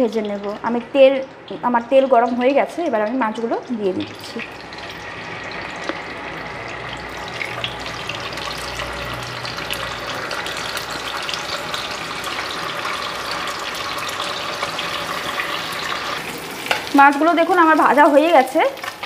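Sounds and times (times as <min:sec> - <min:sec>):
fish sizzling in hot oil: 0:00.0 - 0:19.0.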